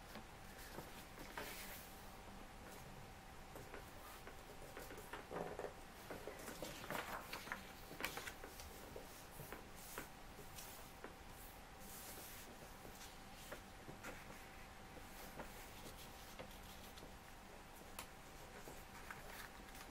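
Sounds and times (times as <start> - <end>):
paper rustling and crackling: 3.6 - 11.1, 17.8 - 19.9.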